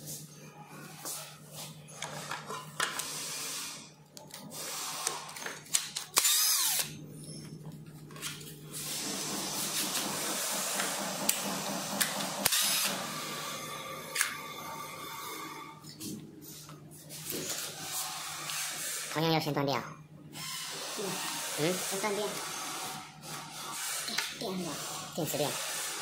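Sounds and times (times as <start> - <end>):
electric screwdriver backing out screws: 5.0 - 6.9, 12.0 - 13.0.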